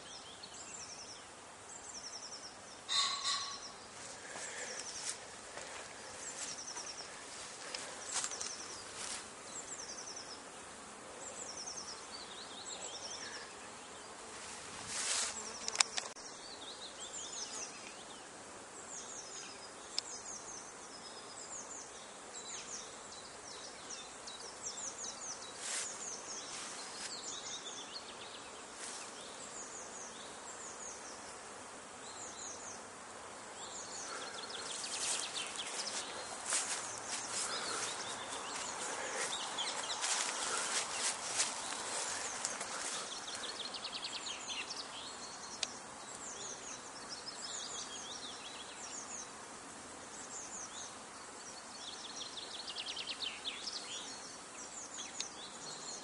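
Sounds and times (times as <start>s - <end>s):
birds chirping: 0.0s - 14.3s, 32.0s - 49.4s
honeybees buzzing: 0.0s - 56.0s.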